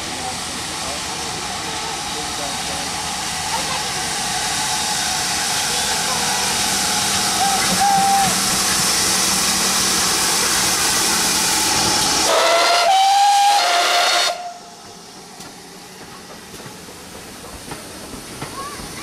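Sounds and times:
steam hissing: 0.0 - 19.0
train rolling past: 0.0 - 19.0
steam train whistle: 7.4 - 8.4, 12.2 - 14.7.

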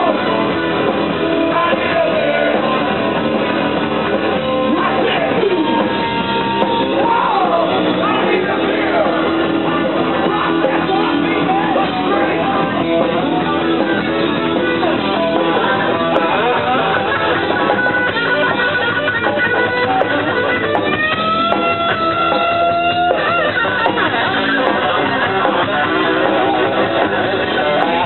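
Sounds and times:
distorted electric guitar: 0.0 - 28.0
punk rock band playing: 0.0 - 28.0.

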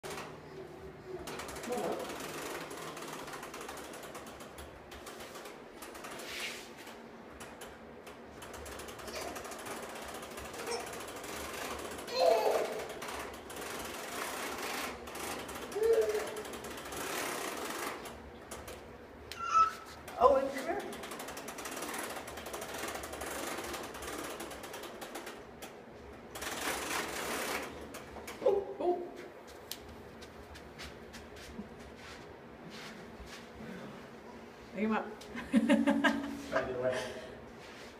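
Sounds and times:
toy wheels clicking on carpet: 1.3 - 28.4.

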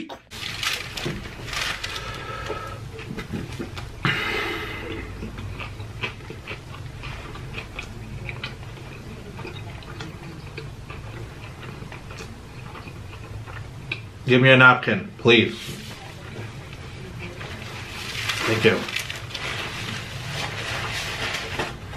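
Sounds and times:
man chewing food: 0.0 - 14.3
low steady hum: 0.0 - 21.9.

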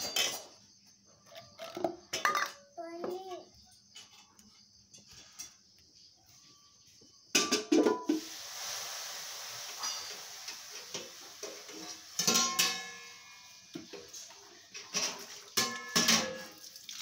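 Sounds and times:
metal buckets clanking: 7.4 - 8.6, 9.5 - 17.0
hiss: 8.0 - 14.4.

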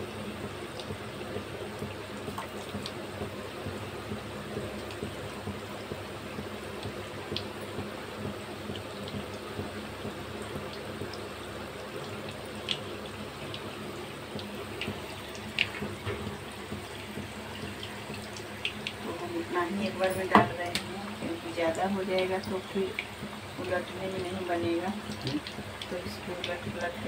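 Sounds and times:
hot oil sizzling: 0.0 - 27.0
oil popping and crackling: 4.6 - 27.0.

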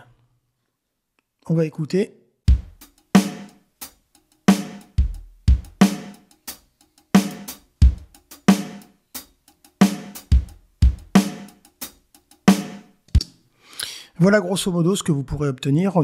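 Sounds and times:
programmed drum beat: 2.5 - 13.4.

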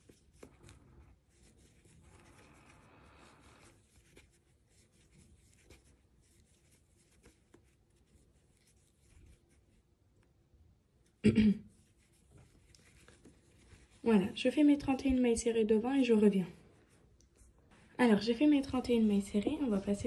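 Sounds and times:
crochet hook rubbing and ticking: 3.5 - 9.6.

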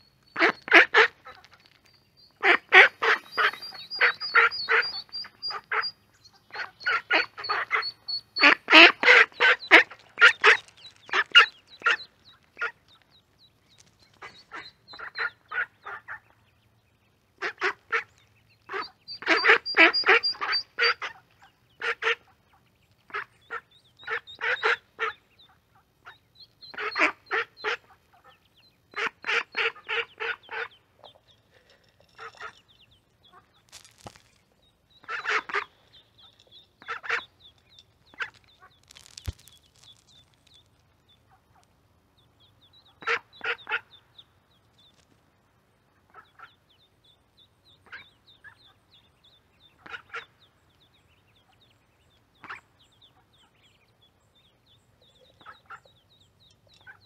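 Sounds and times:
ducklings peeping: 0.0 - 57.0
ducks quacking: 0.2 - 1.7, 2.4 - 13.1, 14.1 - 16.5, 17.3 - 34.3, 34.9 - 39.9, 42.7 - 44.2, 46.0 - 46.8, 47.8 - 51.6, 55.1 - 57.0.

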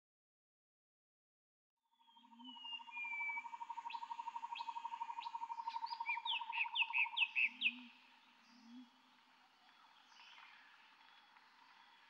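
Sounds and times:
birdsong: 2.0 - 12.0.

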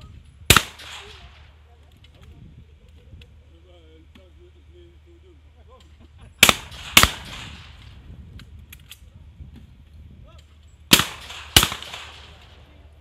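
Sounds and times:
shotgun shots echoing: 0.5 - 1.5, 6.4 - 8.0, 10.9 - 12.7.

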